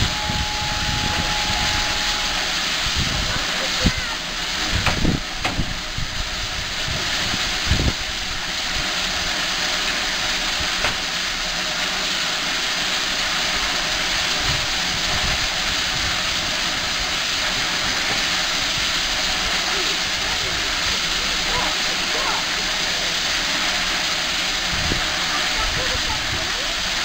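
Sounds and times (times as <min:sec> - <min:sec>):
steam locomotive hissing: 0:00.0 - 0:27.0.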